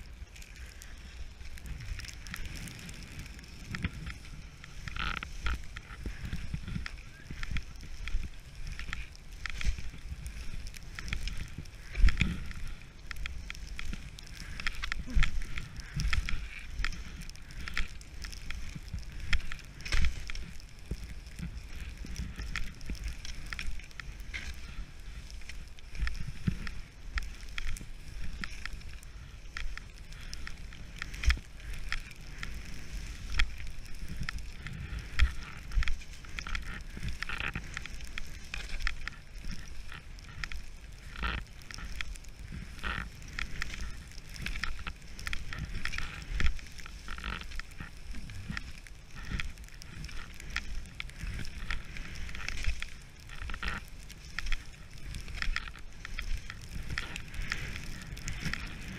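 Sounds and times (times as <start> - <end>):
skis scraping over snow: 0.0 - 58.9.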